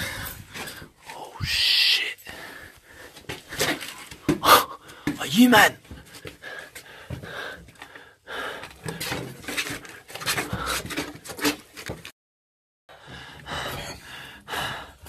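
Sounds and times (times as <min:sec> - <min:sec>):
person gasping for breath: 0:04.4 - 0:05.2, 0:13.0 - 0:15.0.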